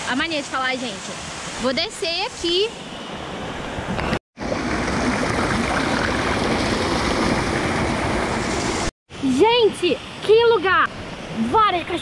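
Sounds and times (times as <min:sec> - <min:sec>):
water rushing over rocks: 0:04.4 - 0:08.9.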